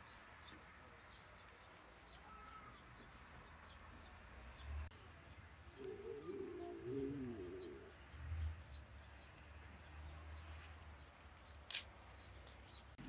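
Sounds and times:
faint high bird chirps: 0:01.1 - 0:04.2
dove cooing: 0:05.7 - 0:08.4.

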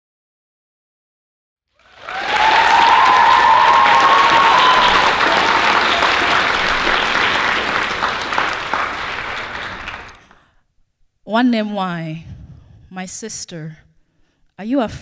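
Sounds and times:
audience applause: 0:01.8 - 0:10.4.

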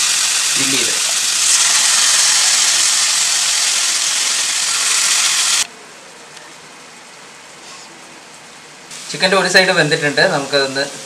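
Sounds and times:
chicken sizzling in butter: 0:00.0 - 0:05.7.

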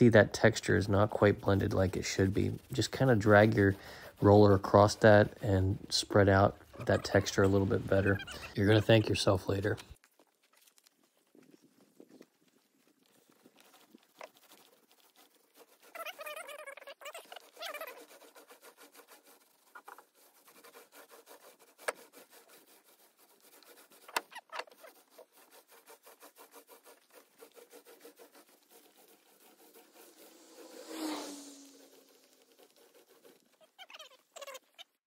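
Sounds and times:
paint roller rubbing: 0:00.0 - 0:10.0, 0:13.2 - 0:34.8
wavering pitched sound: 0:29.6 - 0:32.3.

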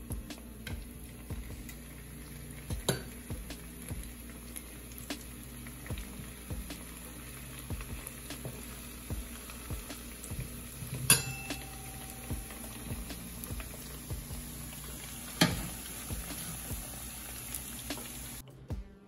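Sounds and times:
plantain frying in bubbling oil: 0:00.0 - 0:18.4
metal tongs tapping pan: 0:02.8 - 0:03.2, 0:10.9 - 0:12.6, 0:15.4 - 0:15.7.

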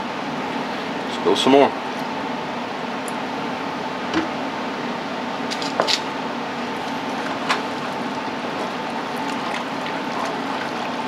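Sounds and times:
wooden spoon stirring in pot: 0:06.7 - 0:11.0.

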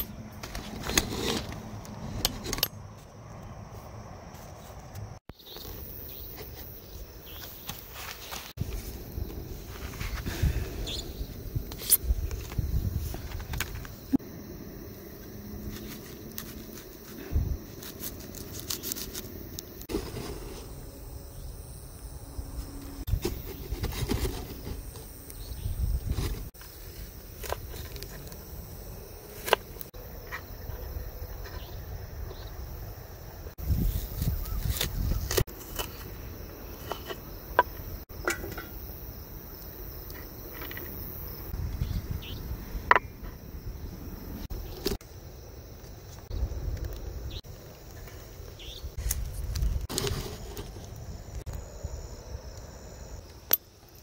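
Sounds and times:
crickets chirping: 0:00.0 - 0:54.0.

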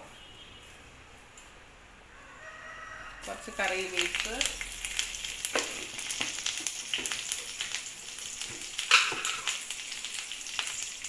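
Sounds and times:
spices sizzling in hot oil: 0:03.2 - 0:11.0.

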